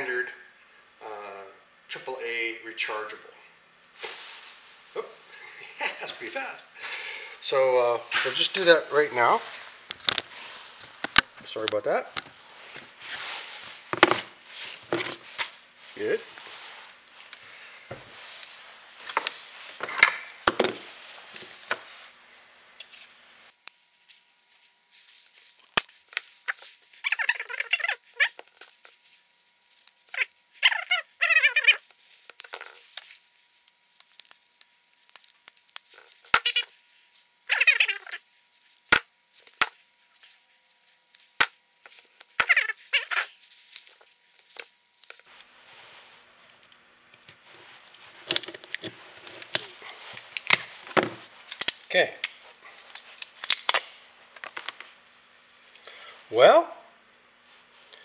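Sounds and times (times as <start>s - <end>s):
squeaky plastic scrapes: 25.1s - 29.0s, 29.8s - 33.1s, 35.2s - 40.5s, 41.8s - 45.3s.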